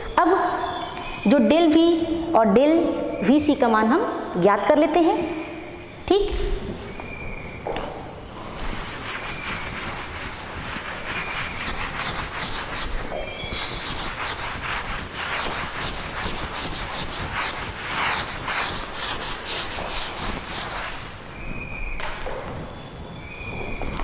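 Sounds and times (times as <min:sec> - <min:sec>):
chalk scratching on a board: 0:08.6 - 0:21.1.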